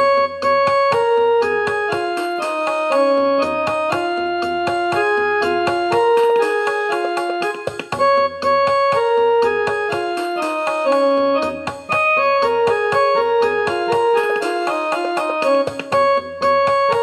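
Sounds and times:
piano melody: 0.0s - 17.0s.

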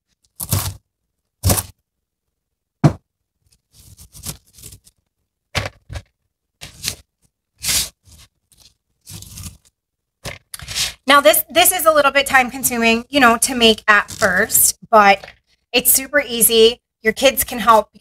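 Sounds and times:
knife knocking on cutting board: 2.8s - 3.0s
scrapes and rustles of cabbage: 3.5s - 5.0s, 7.6s - 9.8s.

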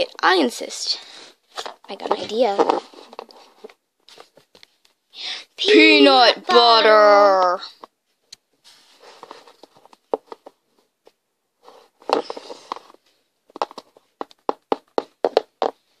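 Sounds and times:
soft rustling: 1.1s - 5.0s, 8.0s - 14.4s
plastic toys knocking and tapping: 13.5s - 15.8s.

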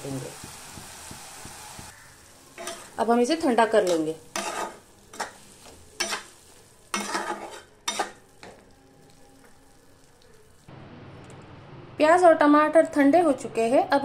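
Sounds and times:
spatula scraping a pan: 2.6s - 3.0s, 3.8s - 8.5s.

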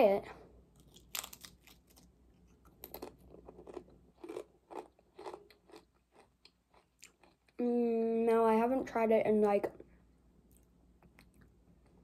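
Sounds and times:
potato chip crunching: 0.7s - 7.5s.

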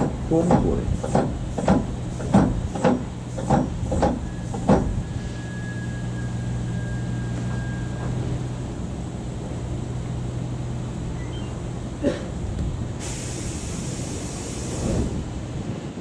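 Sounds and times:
wheels clacking over rail joints: 0.0s - 5.1s
electric train humming: 0.0s - 16.0s.

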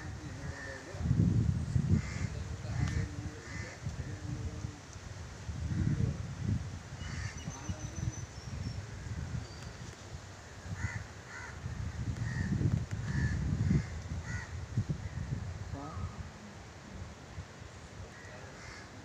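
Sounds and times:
wind rumble on microphone: 0.0s - 19.0s
crows cawing: 7.0s - 7.4s, 10.7s - 14.6s, 18.1s - 19.0s.

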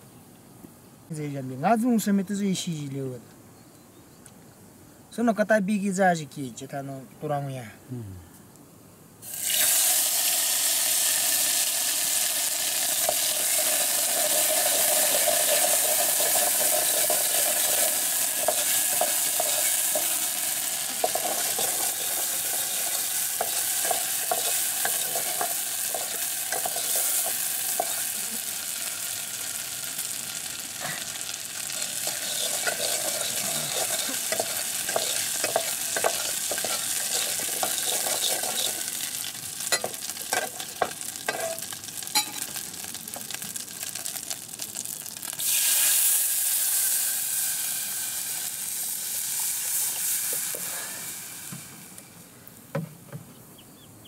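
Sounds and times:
food sizzling in a pot: 9.2s - 52.2s
water hissing in hot pot: 9.2s - 52.2s
metal ladle scraping a pot: 31.7s - 39.0s.

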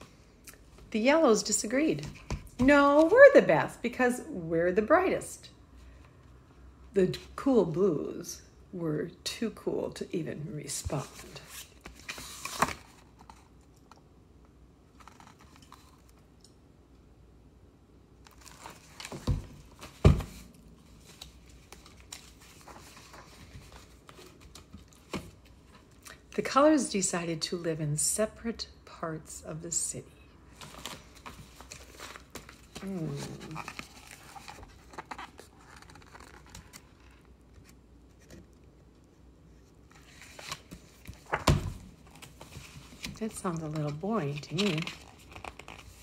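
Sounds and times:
book rustling: 10.8s - 13.7s, 15.0s - 16.2s, 18.3s - 26.0s, 30.6s - 46.0s
page flipping bump: 40.4s - 43.2s.

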